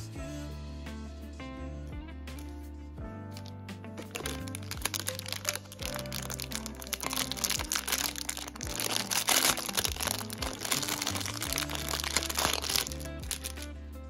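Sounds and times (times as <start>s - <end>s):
background music with bass line: 0.0s - 14.0s
plastic bag crinkling: 3.4s - 13.7s.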